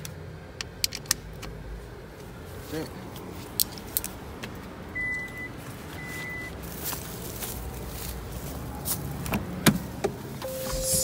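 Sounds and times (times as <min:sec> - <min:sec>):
short electronic beeps: 0:05.0 - 0:06.5, 0:10.4 - 0:11.0.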